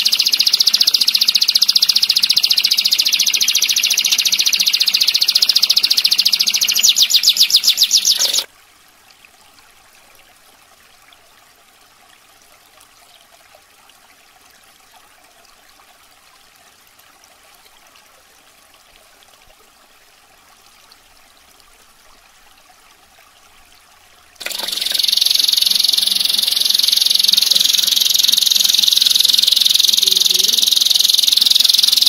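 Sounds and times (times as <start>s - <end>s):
canary singing trill: 0.0s - 8.5s, 24.4s - 32.0s
faint trickling water: 0.0s - 32.0s.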